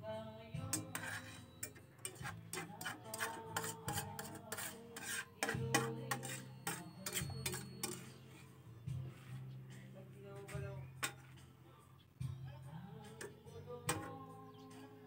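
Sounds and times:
quiet background music: 0:00.0 - 0:15.0
metal utensils scraping pan: 0:00.7 - 0:08.6, 0:11.0 - 0:11.4, 0:13.2 - 0:14.2.

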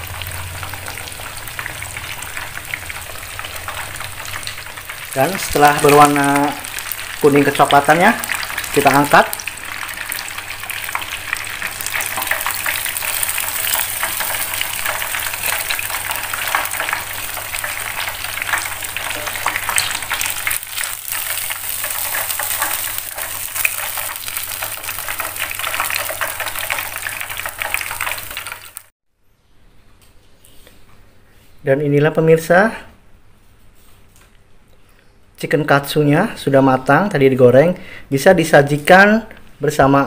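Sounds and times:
cutlets deep-frying in oil: 0:00.0 - 0:28.9.

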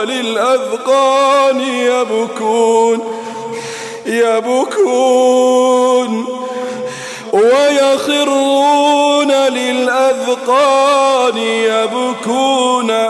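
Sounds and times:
man chanting melodically: 0:00.0 - 0:13.0.

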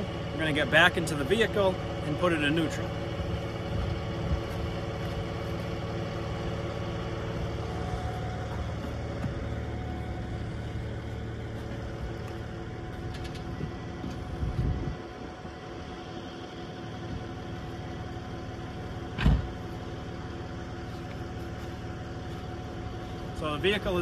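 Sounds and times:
diesel engine idling: 0:00.0 - 0:24.0
car door thump: 0:19.2 - 0:19.5.

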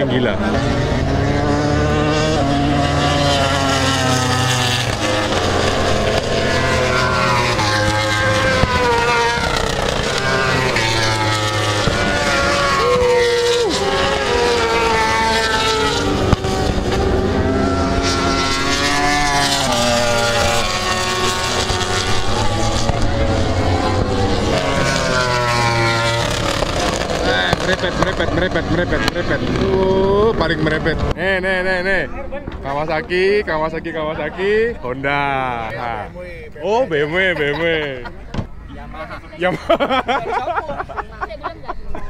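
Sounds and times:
racing motorcycles revving past: 0:00.0 - 0:31.2.

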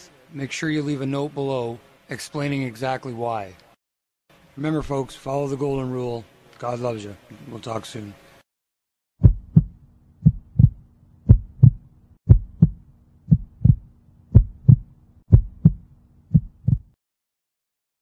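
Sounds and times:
heartbeat thumps: 0:09.2 - 0:17.0.

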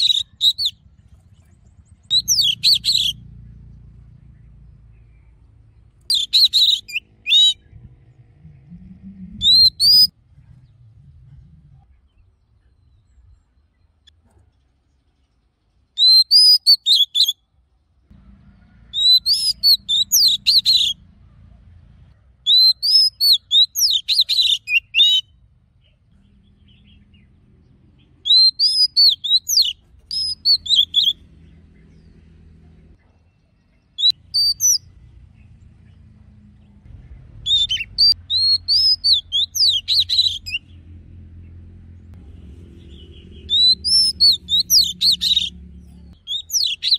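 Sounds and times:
bird singing whistled phrases: 0:00.0 - 0:00.8, 0:02.1 - 0:03.2, 0:06.1 - 0:07.7, 0:09.3 - 0:10.1, 0:16.0 - 0:17.4, 0:19.0 - 0:21.0, 0:22.5 - 0:25.3, 0:28.2 - 0:31.2, 0:33.9 - 0:34.8, 0:37.4 - 0:40.6, 0:43.4 - 0:45.5, 0:46.2 - 0:46.9.

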